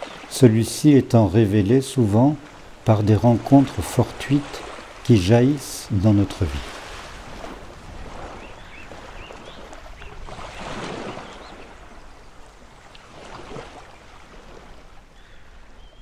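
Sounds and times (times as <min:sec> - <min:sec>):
small waves on pebble shore: 0:06.4 - 0:15.5.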